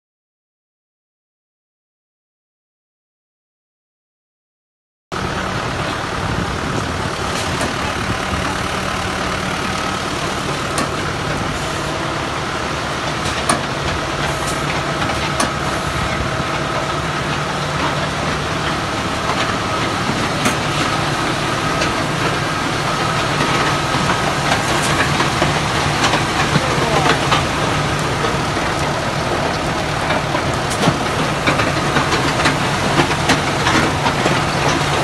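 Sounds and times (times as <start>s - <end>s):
machine hum with high whine: 5.2s - 35.0s.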